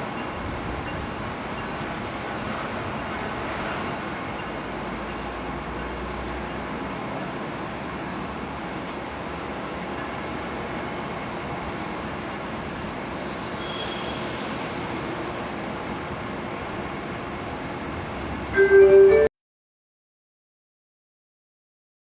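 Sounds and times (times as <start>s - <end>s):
distant vehicle and rail rumble: 0.0s - 19.3s
faint high tones: 18.6s - 19.3s.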